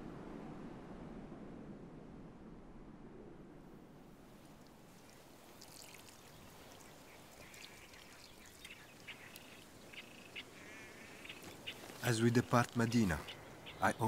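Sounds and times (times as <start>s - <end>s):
soft steady hiss: 0.0s - 14.0s
small birds chirping: 4.5s - 14.0s.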